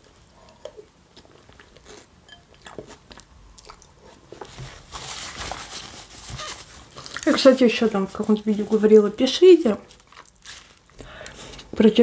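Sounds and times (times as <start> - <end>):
person chewing: 0.0 - 4.6.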